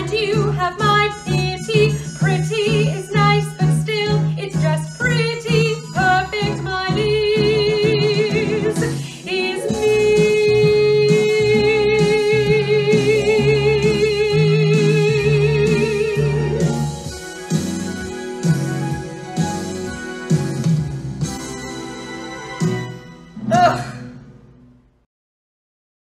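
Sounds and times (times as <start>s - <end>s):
soprano singing with vibrato: 0.0s - 16.8s
instrumental accompaniment: 0.0s - 24.9s.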